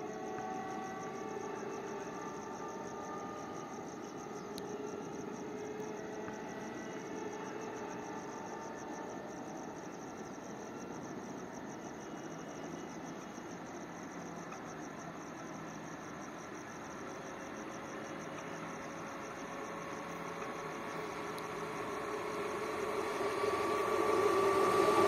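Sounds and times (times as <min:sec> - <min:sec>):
crickets chirring: 0:00.0 - 0:25.0
distant train rumble: 0:16.5 - 0:25.0.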